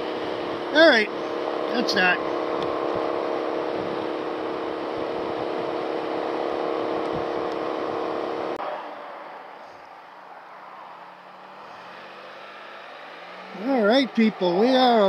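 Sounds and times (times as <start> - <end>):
motorcycle engine drone: 0.0 - 15.0
wind rush: 2.2 - 8.4.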